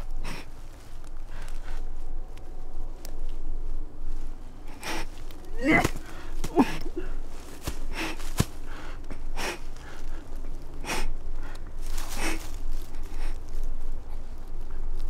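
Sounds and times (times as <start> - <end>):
person breathing heavily: 0.0 - 2.8, 4.6 - 14.6.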